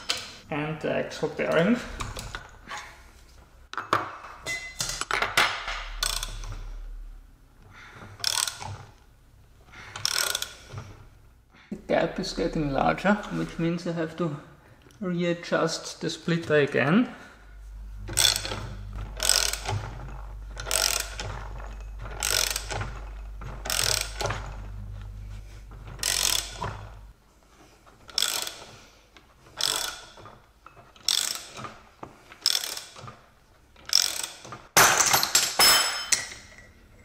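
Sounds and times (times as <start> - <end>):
ratchet wrench clicking: 5.9 - 6.7, 8.2 - 8.7, 10.0 - 10.7, 18.2 - 19.8, 20.6 - 22.9, 23.6 - 24.3, 26.0 - 26.7, 28.1 - 28.7, 29.6 - 30.2, 31.0 - 31.6, 32.4 - 33.1, 33.8 - 34.5.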